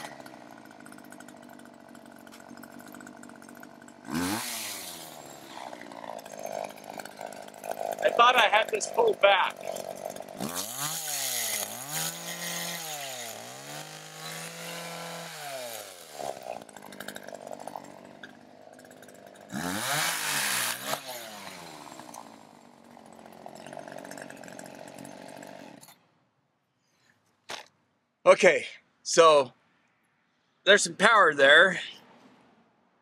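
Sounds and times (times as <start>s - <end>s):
chainsaw revving through wood: 0.0s - 26.0s.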